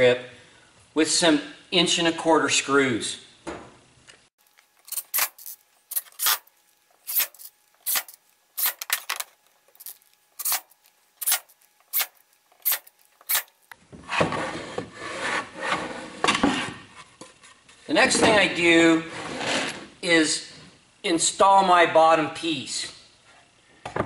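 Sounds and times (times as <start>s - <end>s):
screws and wood clicking: 4.5s - 13.7s.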